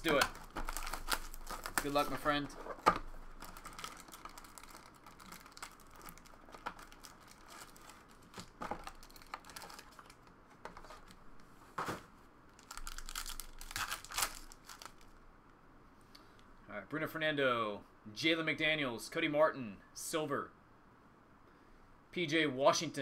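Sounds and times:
foil wrapper rips and rustles: 0:00.0 - 0:10.3, 0:12.6 - 0:15.1
foil wrappers crinkling: 0:00.0 - 0:11.2, 0:12.5 - 0:15.2.

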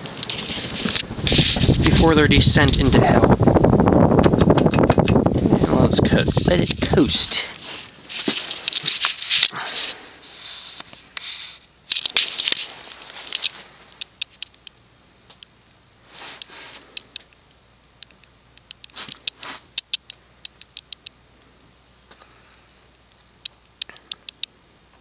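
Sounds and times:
ceiling fan coasting down: 0:00.0 - 0:25.0
light ticks and clicks: 0:16.4 - 0:21.5, 0:23.1 - 0:25.0.

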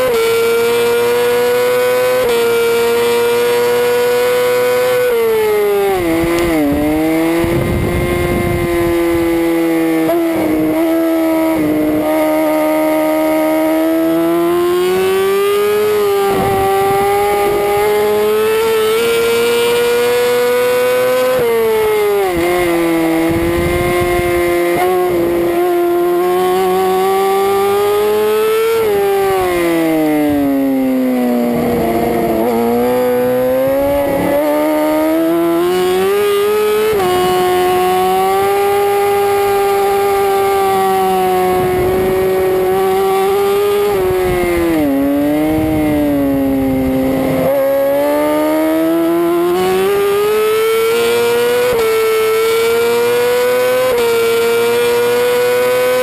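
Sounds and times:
superbike engine revving: 0:00.0 - 0:56.0.

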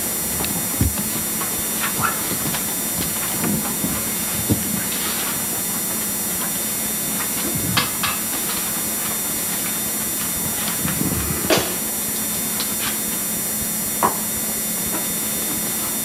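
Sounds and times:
videotape hiss and hum: 0:00.0 - 0:14.8
hymnals knocking and rustling: 0:00.6 - 0:05.3.

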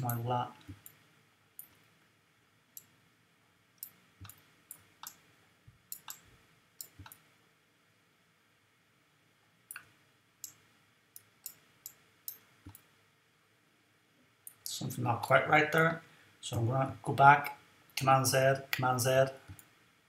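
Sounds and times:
mouse buttons clicking: 0:03.8 - 0:05.3, 0:05.9 - 0:07.3, 0:09.7 - 0:10.6, 0:11.2 - 0:12.9.

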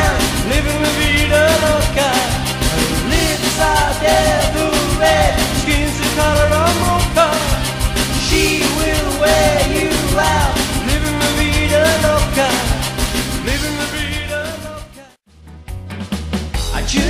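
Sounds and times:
backing track with steady beat: 0:00.0 - 0:14.8
man singing pop song: 0:00.0 - 0:15.2, 0:16.7 - 0:17.0.

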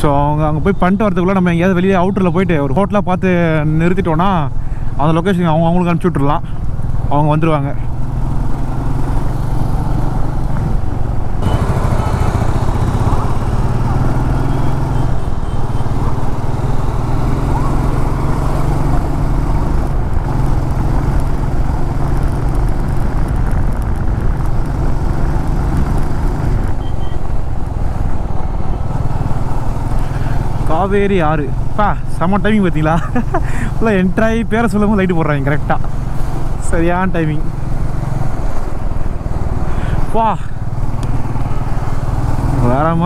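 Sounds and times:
wind and road noise: 0:00.0 - 0:43.0
motorcycle engine running: 0:06.4 - 0:43.0.

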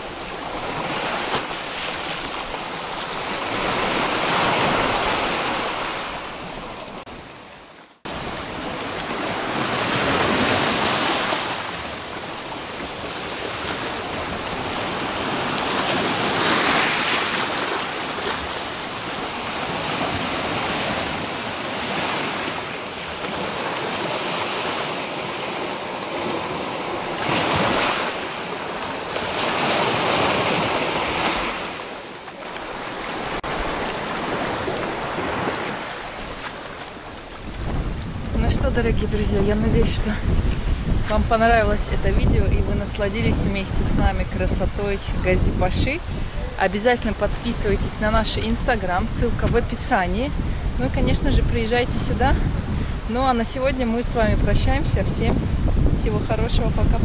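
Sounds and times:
waves washing up pebble beach: 0:08.1 - 0:38.0.

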